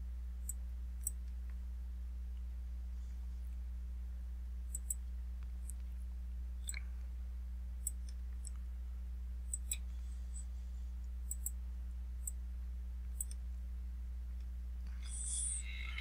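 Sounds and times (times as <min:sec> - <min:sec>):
steady low hum: 0:00.0 - 0:16.0
computer mouse clicking: 0:11.3 - 0:11.6.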